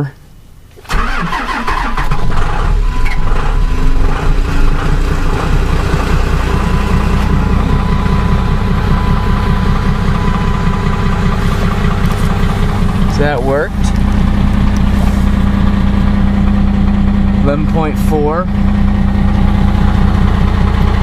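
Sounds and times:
diesel engine idling: 0:00.0 - 0:21.0
starter motor cranking: 0:00.9 - 0:16.8.

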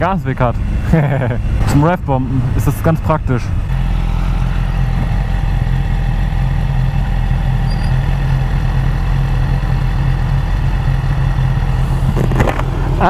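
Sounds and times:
motorcycle engine idling: 0:03.0 - 0:13.0.

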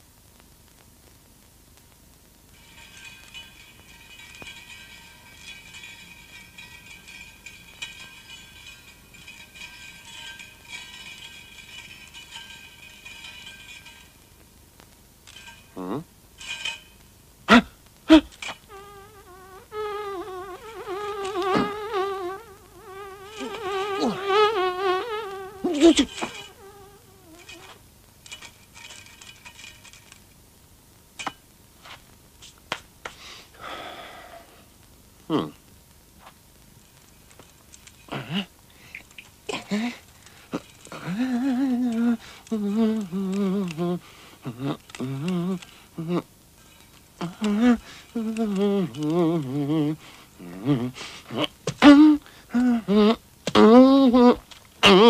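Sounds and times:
metallic tinkling clicks: 0:02.5 - 0:17.3, 0:18.3 - 0:30.5, 0:36.6 - 0:51.4
rustling scrape: 0:02.6 - 0:14.4, 0:23.1 - 0:30.4, 0:31.2 - 0:33.4, 0:36.2 - 0:46.0
sharp metallic clinks: 0:02.6 - 0:14.6, 0:15.2 - 0:17.2, 0:18.1 - 0:30.4, 0:31.2 - 0:32.0, 0:36.7 - 0:52.0
metallic rattling and jingling: 0:02.6 - 0:17.3, 0:18.3 - 0:18.9, 0:20.4 - 0:30.5, 0:36.6 - 0:51.8
high ringing tones: 0:02.6 - 0:17.4, 0:18.3 - 0:30.3, 0:39.0 - 0:50.5.

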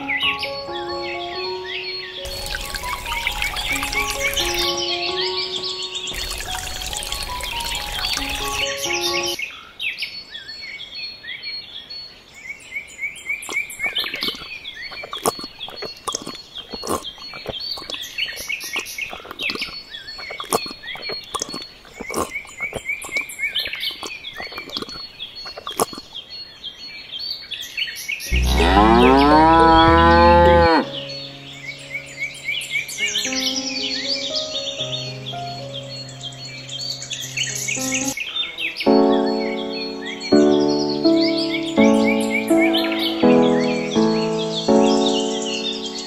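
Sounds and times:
high bird chirping: 0:00.0 - 0:09.5, 0:13.0 - 0:46.0
cow mooing: 0:28.3 - 0:31.0.

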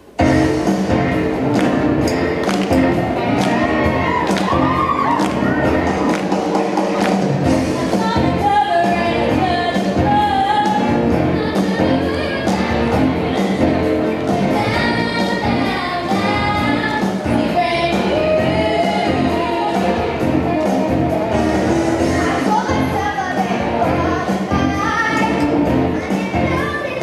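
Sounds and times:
instrumental backing music: 0:00.0 - 0:27.0
girl singing through amplification: 0:07.7 - 0:13.7, 0:14.5 - 0:19.8, 0:22.1 - 0:27.0.

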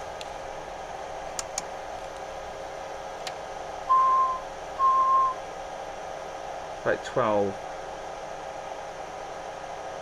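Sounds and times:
short beeps: 0:03.9 - 0:05.4.

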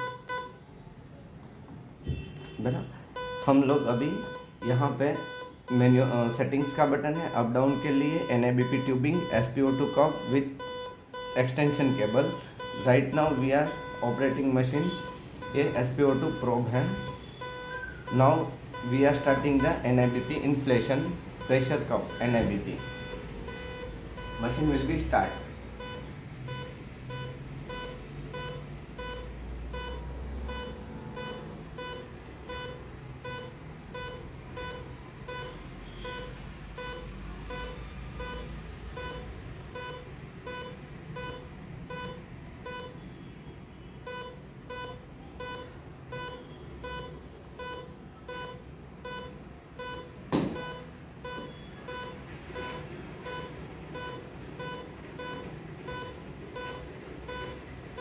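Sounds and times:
patient monitor beeps: 0:00.0 - 0:00.6, 0:03.2 - 0:58.0
knock: 0:50.3 - 0:50.6.

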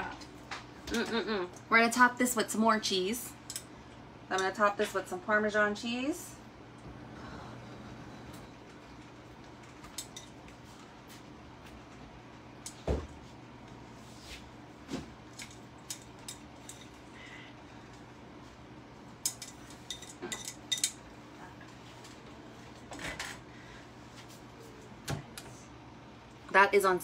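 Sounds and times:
faint steady hum: 0:00.0 - 0:27.0
kitchenware clinking and scraping: 0:19.3 - 0:21.0.

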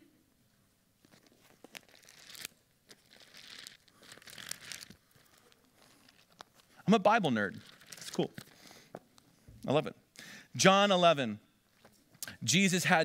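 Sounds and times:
pages being turned: 0:01.0 - 0:08.8.

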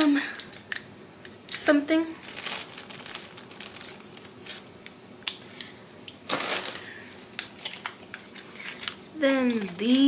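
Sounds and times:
plastic packaging rustling: 0:01.5 - 0:04.8, 0:06.3 - 0:10.0.

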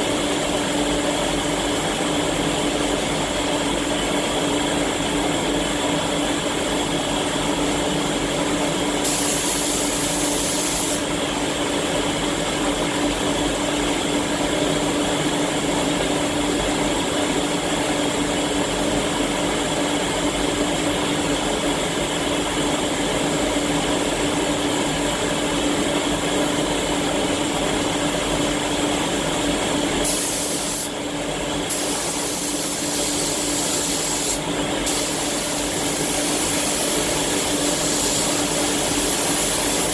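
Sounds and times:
spray gun hissing: 0:09.0 - 0:11.1, 0:30.0 - 0:31.0, 0:31.7 - 0:39.9.

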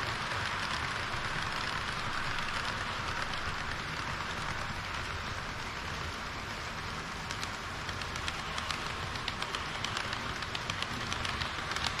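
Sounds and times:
model train wheels clicking: 0:00.0 - 0:12.0
steady hiss: 0:00.0 - 0:12.0.

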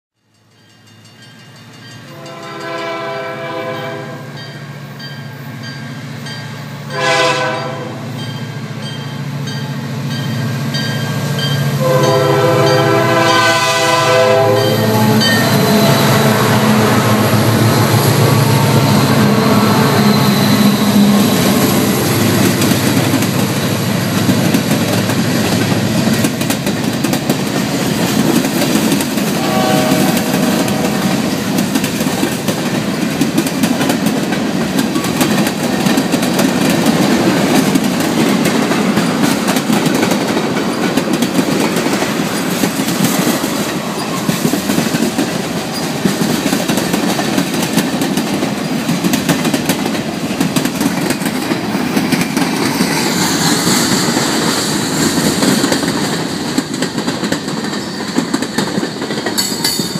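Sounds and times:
diesel locomotive engines: 0:00.3 - 0:59.9
train air horn: 0:02.1 - 0:04.4, 0:06.8 - 0:08.2, 0:11.8 - 0:22.0, 0:29.3 - 0:31.4
clickety-clack of train wheels: 0:08.2 - 0:59.9.

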